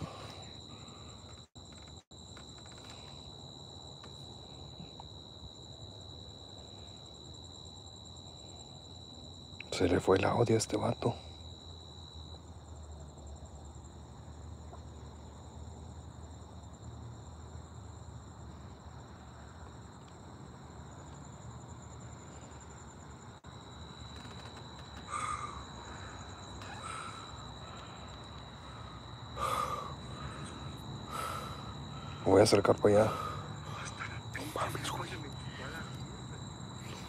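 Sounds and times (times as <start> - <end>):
person breathing: 0.0 - 1.4, 25.1 - 32.3, 33.0 - 34.2, 35.4 - 36.1
crickets chirring: 0.0 - 37.0.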